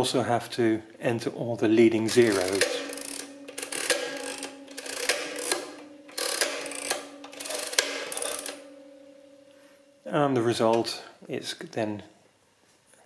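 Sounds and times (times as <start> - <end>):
adding machine wheels ratcheting: 2.0 - 8.7.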